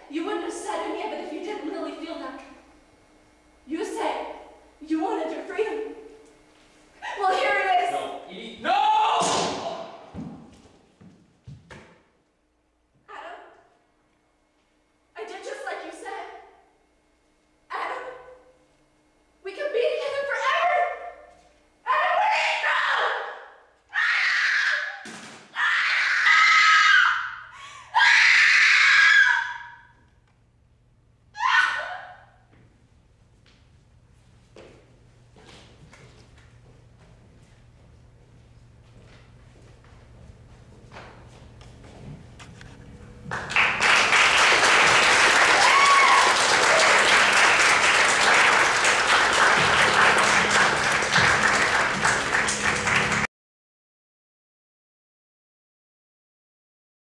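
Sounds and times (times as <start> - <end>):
woman screaming and wailing: 25.6 - 29.7, 31.4 - 32.2, 45.6 - 46.4
audience applauding: 43.3 - 53.3.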